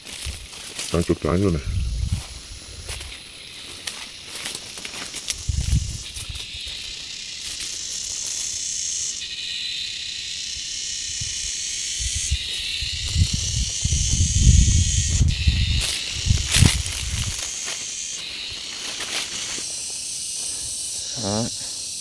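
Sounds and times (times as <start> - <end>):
high-pitched insect chorus: 0.0 - 22.0
footsteps thudding: 15.1 - 17.9.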